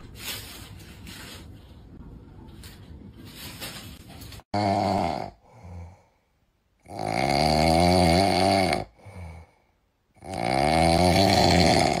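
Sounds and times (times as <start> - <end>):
kitten snoring: 6.8 - 9.4, 10.2 - 12.0
faint breath: 8.9 - 9.9.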